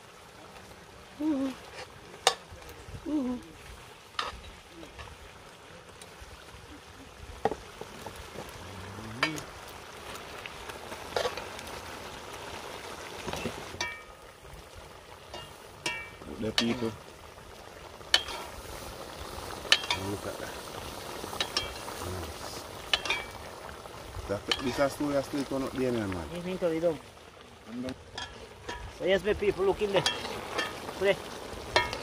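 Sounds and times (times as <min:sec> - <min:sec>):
stew simmering with sizzling hiss: 0:00.0 - 0:32.0
metal spoon clinking on pot: 0:15.3 - 0:16.7, 0:22.9 - 0:23.3, 0:28.1 - 0:28.9.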